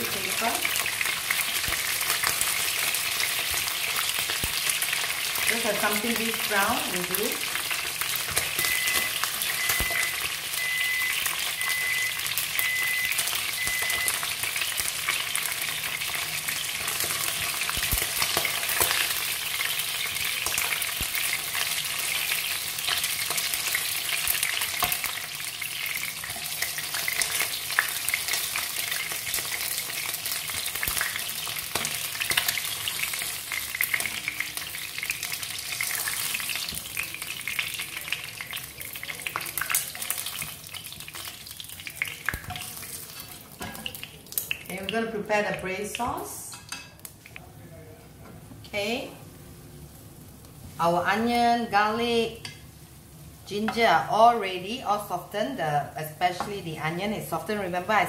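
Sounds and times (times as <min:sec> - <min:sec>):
fish sizzling in hot oil: 0:00.0 - 0:45.0.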